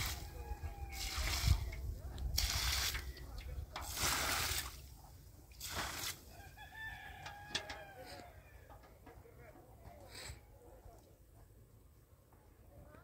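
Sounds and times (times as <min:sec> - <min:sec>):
water pouring onto dirt: 0:00.0 - 0:06.4.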